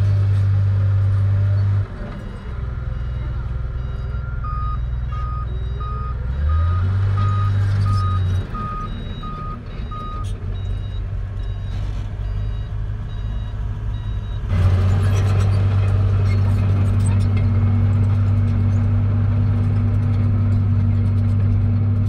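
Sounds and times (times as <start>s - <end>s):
diesel engine running: 0.0s - 22.0s
reversing alarm beeping: 2.9s - 14.4s.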